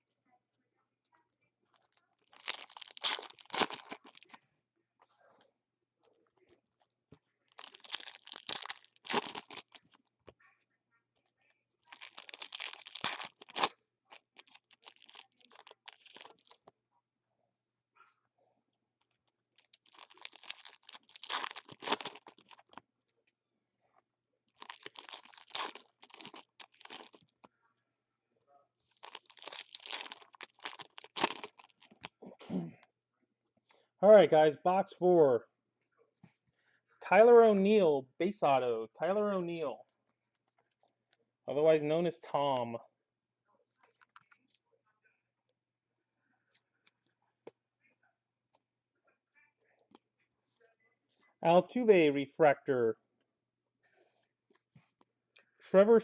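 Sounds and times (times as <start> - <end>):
foil wrappers tearing and crinkling: 2.3 - 4.2, 7.6 - 9.8, 11.9 - 13.8, 19.8 - 22.8, 24.6 - 27.3, 29.0 - 32.0.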